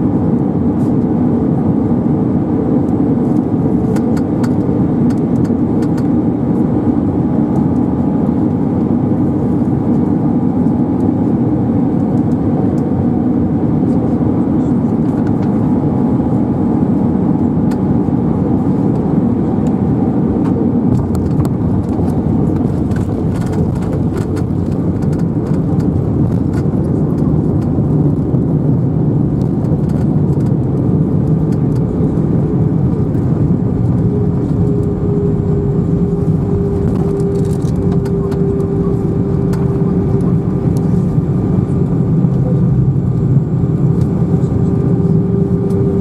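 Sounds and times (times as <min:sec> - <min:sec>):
aircraft engine and airflow noise: 0:00.0 - 0:46.0
steady whine: 0:00.0 - 0:46.0
wheels rumbling on runway: 0:00.0 - 0:46.0.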